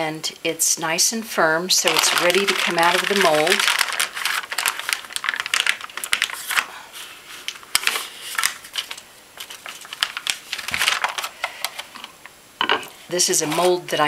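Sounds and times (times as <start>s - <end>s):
paper rustling and crinkling: 1.8s - 11.9s, 13.3s - 13.8s.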